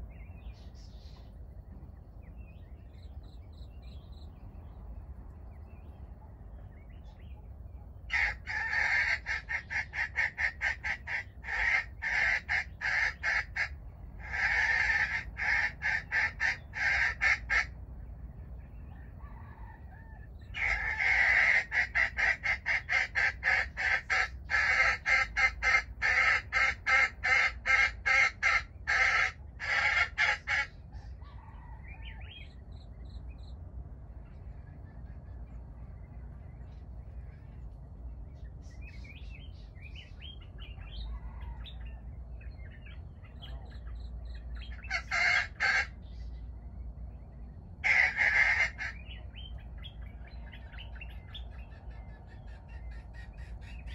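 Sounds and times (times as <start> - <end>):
hen clucking rapidly: 8.0 - 17.8, 19.0 - 32.5, 42.6 - 46.3, 47.8 - 53.9.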